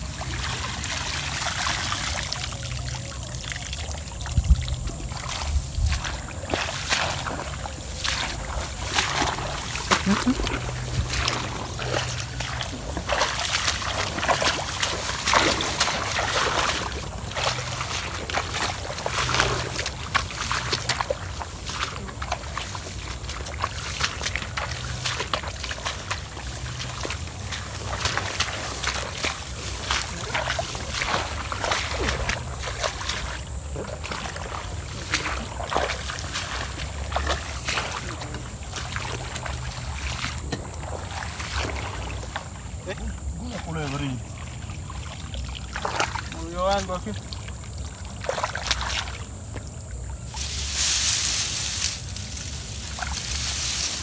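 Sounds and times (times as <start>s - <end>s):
footsteps wading in water: 0.0s - 54.0s
grass swishing: 5.1s - 40.4s, 50.3s - 54.0s
hand net pushed through water: 5.1s - 42.6s, 50.3s - 54.0s.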